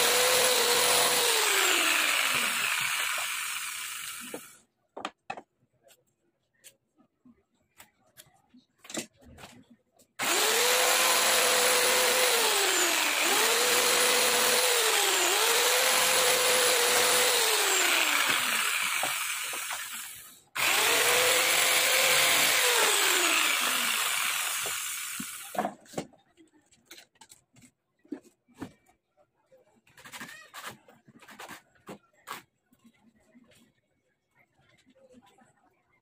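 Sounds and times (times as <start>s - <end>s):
electric power tool running: 0.0s - 4.6s, 10.2s - 25.6s.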